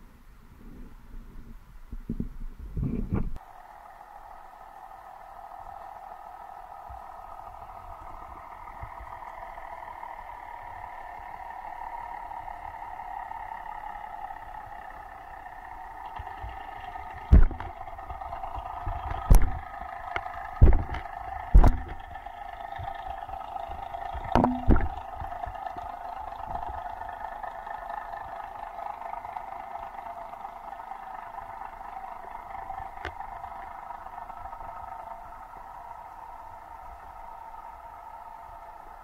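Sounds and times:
underwater droning hum: 0.0s - 39.0s
sharp knocks: 24.4s - 25.0s.

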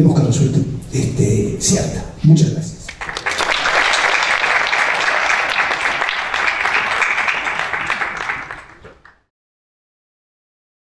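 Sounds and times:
audience applauding: 2.9s - 9.3s.

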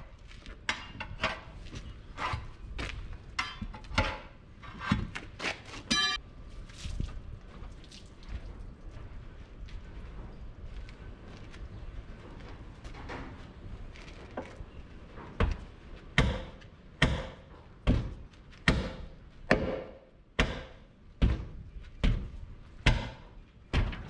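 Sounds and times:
hammer striking metal tools: 5.9s - 6.2s.

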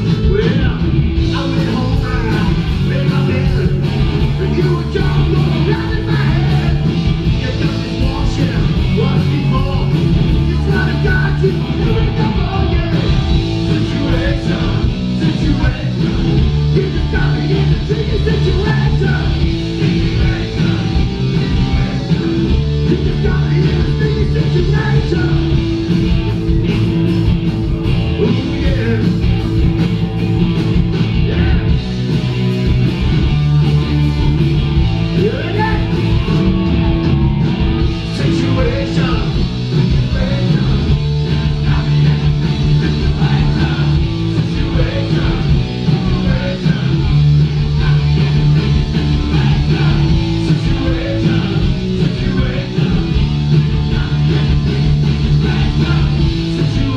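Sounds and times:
bass guitar: 0.0s - 56.9s
drums: 0.0s - 56.9s
electric guitars: 0.0s - 56.9s.

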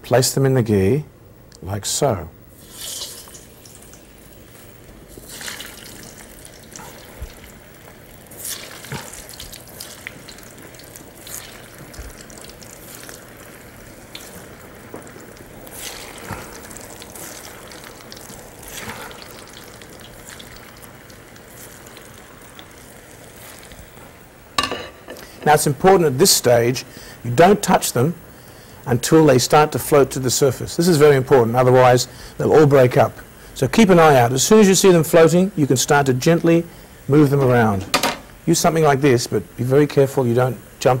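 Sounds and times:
oil spitting and crackling: 2.5s - 25.7s
food deep-frying in fat: 2.5s - 41.0s.

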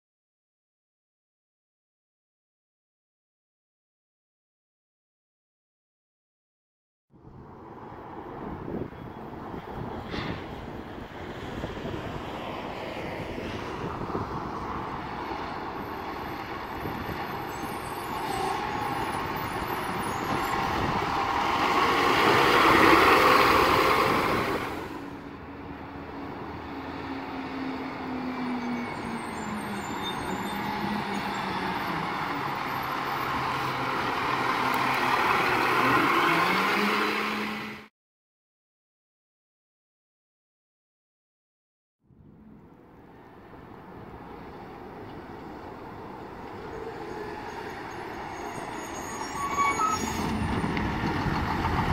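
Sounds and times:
garbage trucks driving past: 7.4s - 37.9s, 42.8s - 51.9s.

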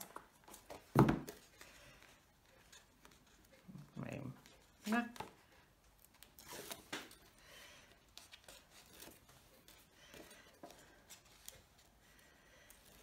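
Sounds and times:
paper rustling: 8.0s - 13.0s.

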